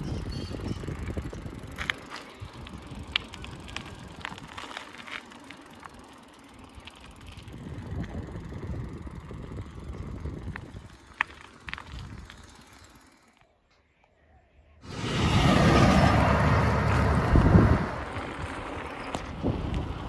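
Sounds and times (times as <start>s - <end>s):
high bird chirps: 0.0s - 1.0s
low rumble: 14.7s - 20.0s.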